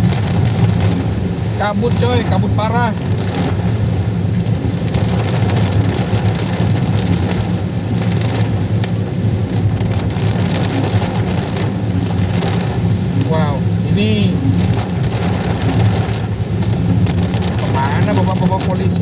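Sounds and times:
car engine and road rumble: 0.0 - 19.0
rain hitting windshield and roof: 0.0 - 19.0
tyres hissing on wet road: 0.0 - 19.0.

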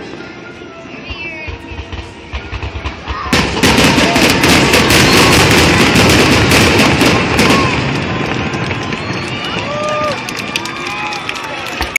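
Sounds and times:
fireworks popping and crackling: 1.0 - 11.9
loud firework burst: 1.6 - 10.2.

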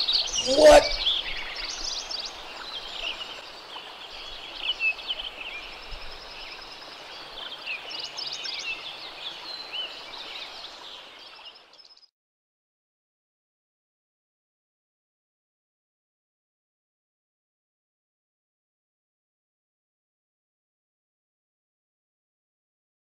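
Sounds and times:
songbirds chirping and trilling: 0.0 - 12.1.

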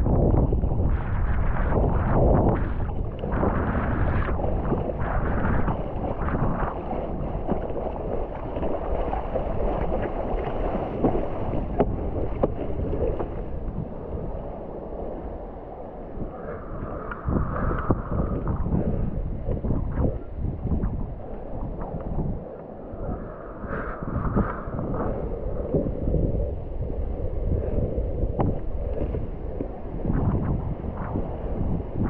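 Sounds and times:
wind buffeting microphone: 0.0 - 32.0
water splashing and sloshing: 0.1 - 32.0
paddle stroke splashes: 3.0 - 20.4.

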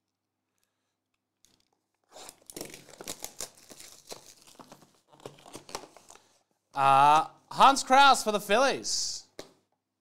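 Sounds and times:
packaging tearing and crinkling: 1.4 - 6.4.

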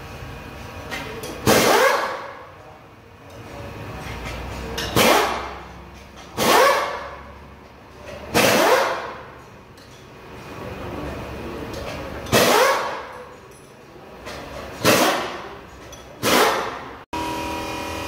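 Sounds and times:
pneumatic impact wrench bursts: 1.2 - 2.4, 4.8 - 7.2, 8.2 - 9.3, 12.2 - 13.2, 14.7 - 15.5, 16.2 - 18.0.

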